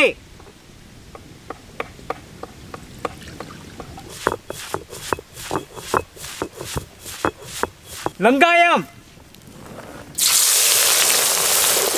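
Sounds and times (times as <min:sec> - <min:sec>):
stone roller knocking on stone slab: 0:01.5 - 0:08.2.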